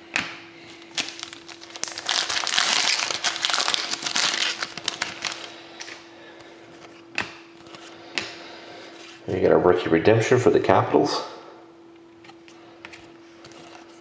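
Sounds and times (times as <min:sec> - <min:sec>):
foil wrapper tearing and crinkling: 0:00.8 - 0:06.0.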